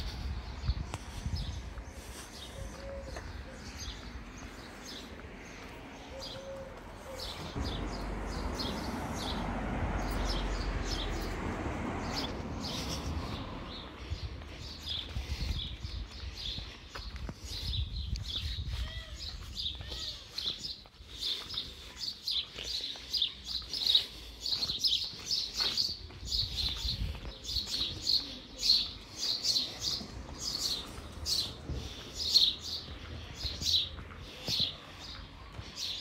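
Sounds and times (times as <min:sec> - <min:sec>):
small birds chirping: 0:00.0 - 0:11.4, 0:12.0 - 0:36.0
low rumble: 0:07.4 - 0:13.7.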